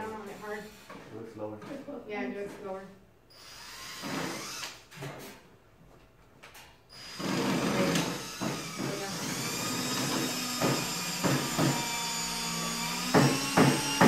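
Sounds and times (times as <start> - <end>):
electric drill boring: 3.3 - 4.8, 6.9 - 14.0.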